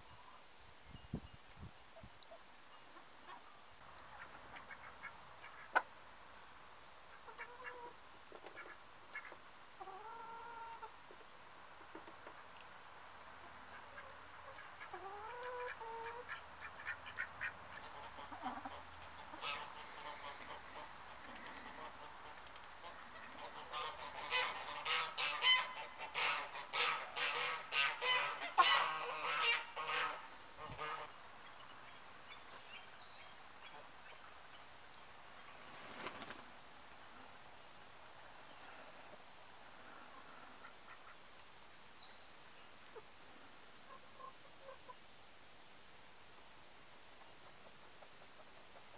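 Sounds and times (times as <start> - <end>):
hens clucking: 7.1 - 12.5, 13.4 - 31.2
goose honking: 14.0 - 20.9, 22.8 - 31.2.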